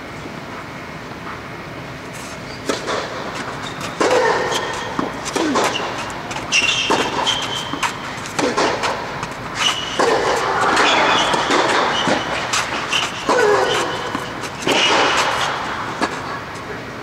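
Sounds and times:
steady background hum: 0.0 - 17.0
tennis racquet striking ball: 2.6 - 16.6
tennis ball bouncing: 2.6 - 16.7
footsteps on clay: 3.2 - 16.3.

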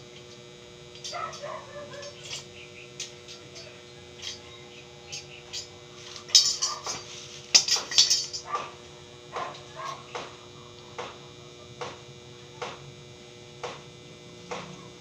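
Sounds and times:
steel bars clinking: 1.0 - 8.6.

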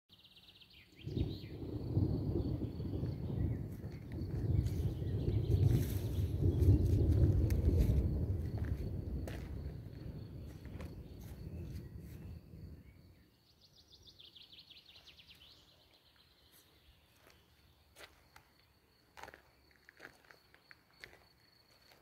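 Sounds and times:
songbird trill: 0.1 - 7.8, 8.5 - 22.0
distant thunder rumbling: 1.0 - 13.2
footsteps on gravel: 3.7 - 12.3, 16.5 - 22.0.

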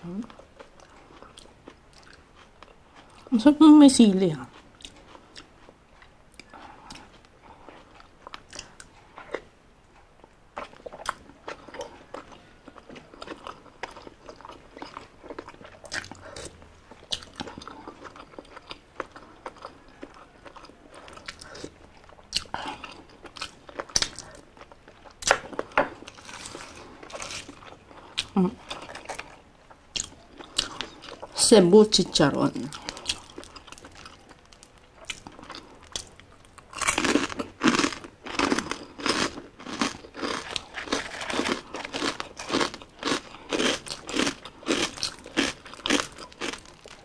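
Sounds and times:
wet chewing and slurping: 32.7 - 47.0.

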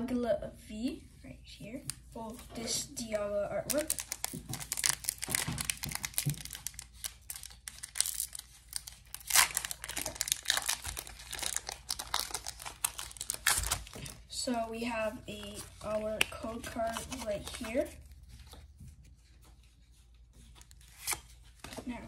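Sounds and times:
foil wrapper crinkling and tearing: 3.6 - 14.4.

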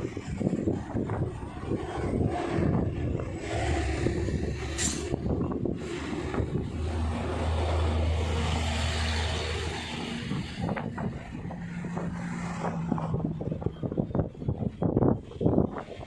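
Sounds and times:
traffic engine hum: 0.0 - 16.0
wind rushing on microphone: 0.0 - 16.0.

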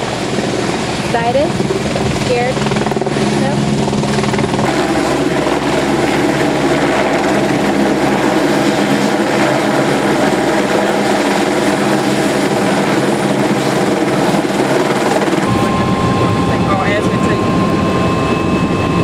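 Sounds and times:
helicopter rotor and engine: 0.0 - 19.0.

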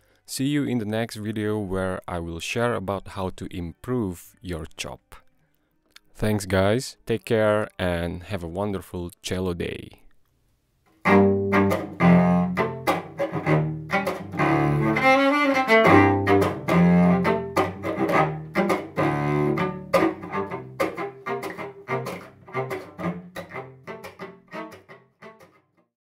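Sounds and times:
cello chop bowing: 11.0 - 25.6.

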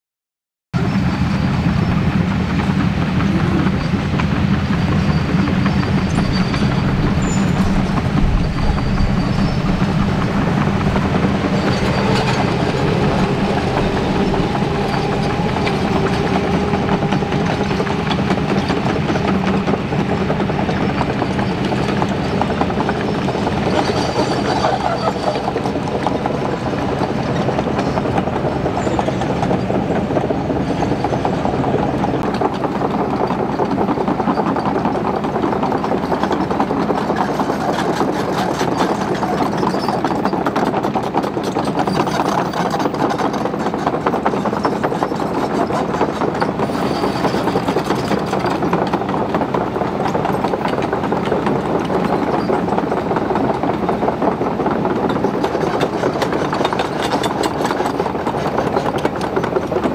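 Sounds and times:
diesel engines running: 0.8 - 59.9
steel tracks clattering: 0.8 - 59.9.

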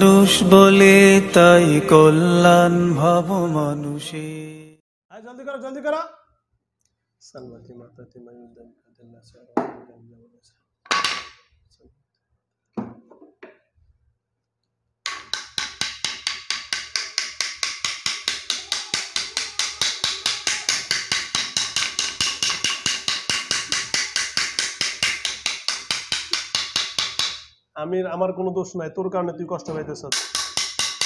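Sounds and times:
fast sharp wooden knocks: 15.1 - 27.5, 30.1 - 31.0.

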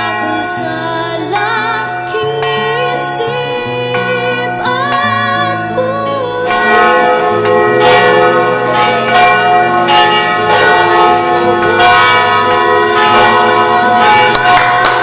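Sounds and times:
church bells ringing: 0.0 - 15.0.

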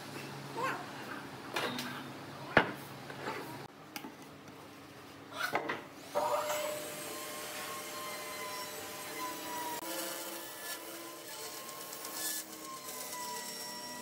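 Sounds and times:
bandsaw whining: 6.1 - 14.0.

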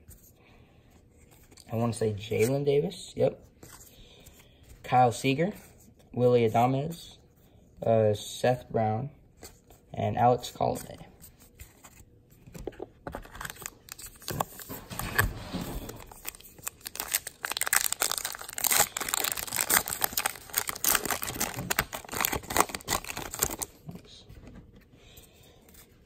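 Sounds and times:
wrapper crinkling and tearing: 13.2 - 24.0.

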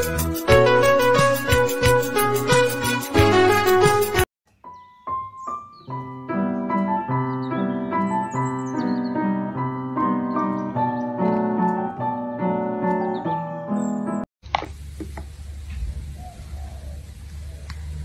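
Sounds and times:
piano music: 0.0 - 14.3.

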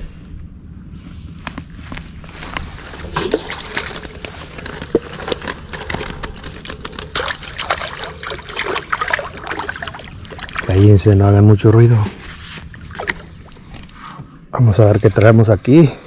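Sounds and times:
water splashing and sloshing: 1.9 - 14.3.

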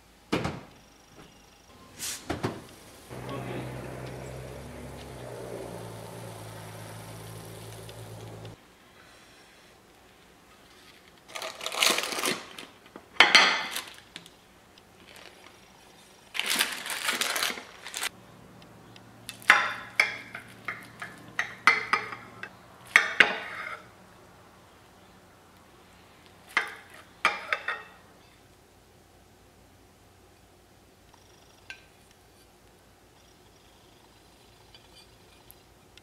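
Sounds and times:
dishes clinking: 19.4 - 23.8
plates and baking pan clattering: 19.4 - 23.8.

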